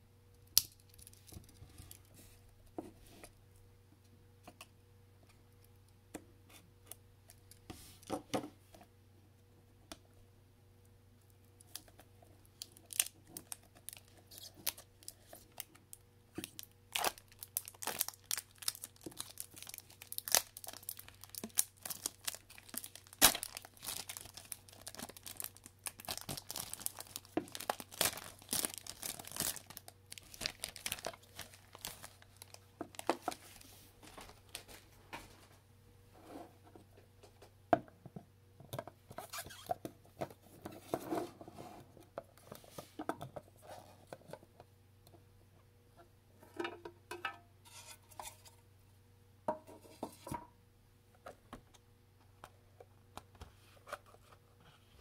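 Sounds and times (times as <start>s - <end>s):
wrapper tearing and crinkling: 12.6s - 15.7s, 16.4s - 33.6s.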